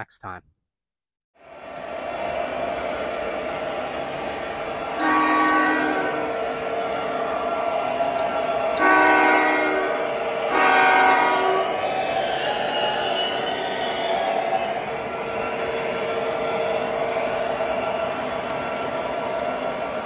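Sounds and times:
train chime horn blasts: 0:05.0 - 0:06.4, 0:08.8 - 0:09.9, 0:10.5 - 0:11.7.

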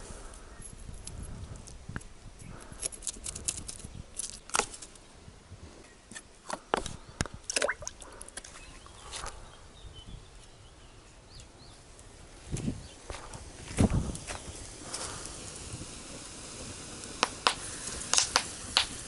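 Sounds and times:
footsteps on grass: 0:12.5 - 0:15.2.

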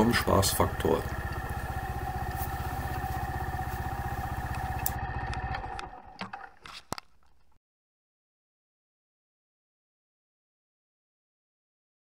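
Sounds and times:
motorcycle engine idling: 0:00.0 - 0:06.5.

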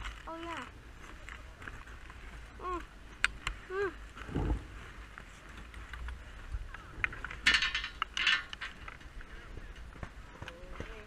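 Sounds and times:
chairlift mechanical rattling: 0:05.1 - 0:10.3.

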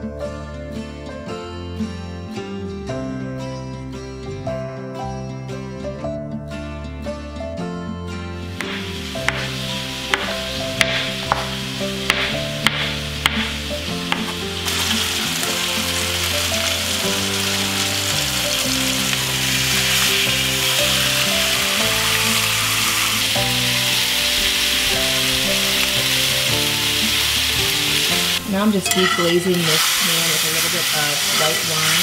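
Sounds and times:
background music: 0:00.0 - 0:32.0
chicken sizzling in skillet: 0:08.4 - 0:32.0.

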